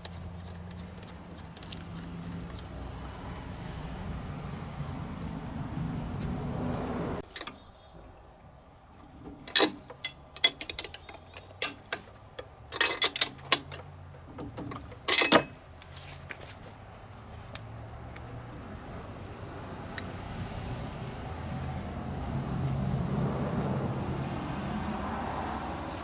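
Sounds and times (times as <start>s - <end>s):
steady low rumble: 2.4s - 7.2s
metal tools clinking on metal: 7.2s - 7.6s, 9.4s - 15.6s.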